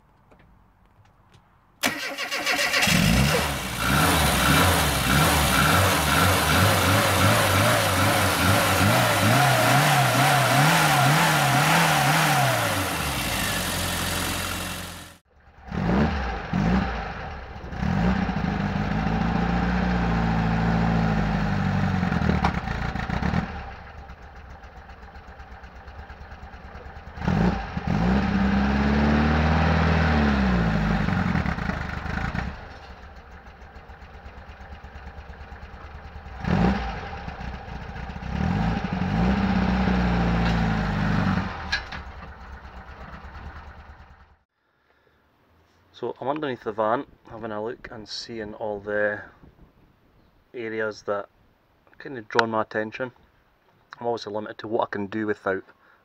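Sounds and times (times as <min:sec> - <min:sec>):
vehicle engine revving: 0:01.8 - 0:44.4.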